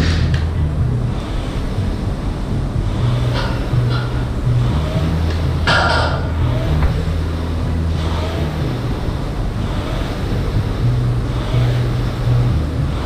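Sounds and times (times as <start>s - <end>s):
rowing machine fan whooshing: 0.0s - 13.0s
steady low hum: 0.0s - 13.0s.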